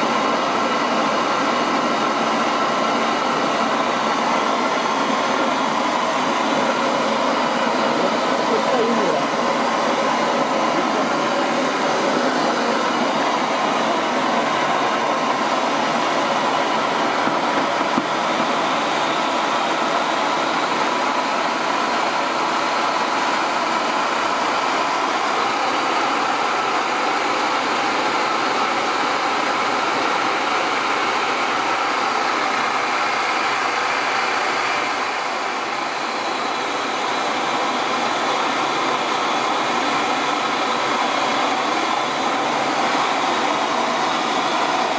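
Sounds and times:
small jet engine running: 0:00.0 - 0:44.9.

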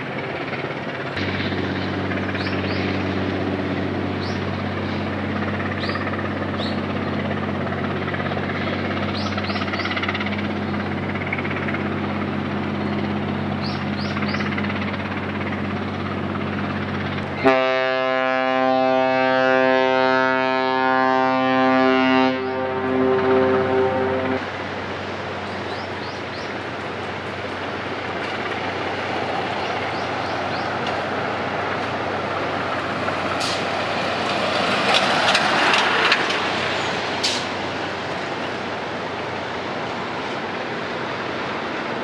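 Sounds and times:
ship engine drone: 0:00.0 - 0:42.0
multi-tone ship's horn blast: 0:17.4 - 0:24.5.

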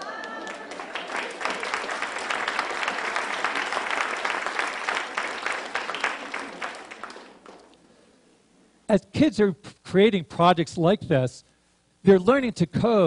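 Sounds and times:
large audience applauding: 0:00.0 - 0:07.8.

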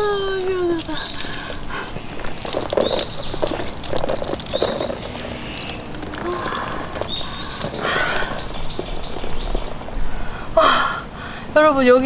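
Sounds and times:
water spraying and splashing: 0:00.0 - 0:10.2
bird rising call: 0:02.6 - 0:10.2.

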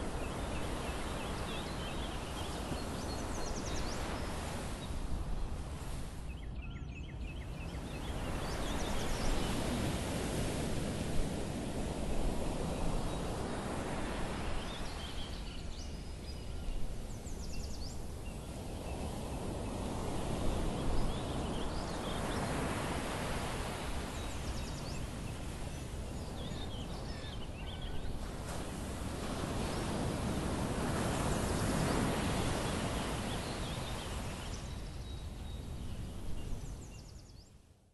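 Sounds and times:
birds chirping: 0:12.8 - 0:30.3, 0:30.9 - 0:37.5.

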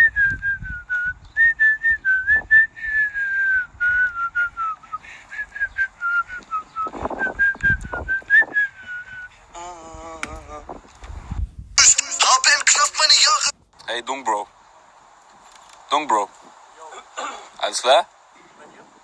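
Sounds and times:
man whistling a tune: 0:00.0 - 0:09.4.

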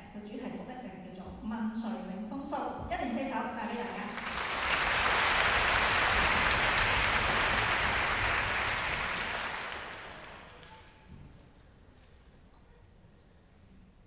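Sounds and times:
audience applauding: 0:03.7 - 0:10.9.

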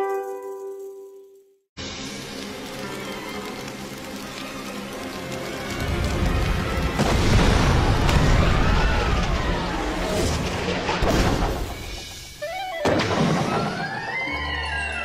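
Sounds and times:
crackles and clatters: 0:00.0 - 0:12.2
cartoon explosion rumbling: 0:06.9 - 0:12.0.

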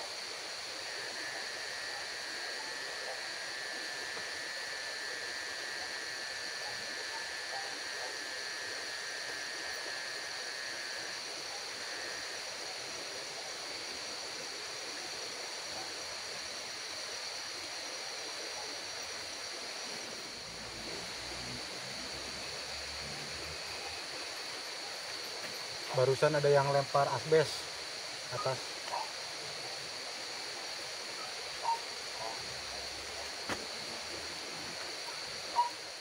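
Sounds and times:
high-pitched buzz: 0:00.0 - 0:12.7.

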